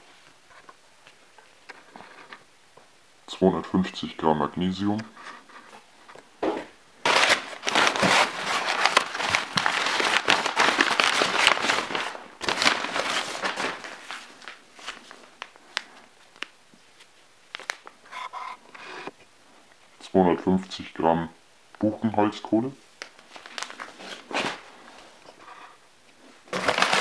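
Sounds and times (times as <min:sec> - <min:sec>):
packing paper rustling: 0:07.0 - 0:18.7, 0:23.0 - 0:25.5, 0:26.2 - 0:27.0.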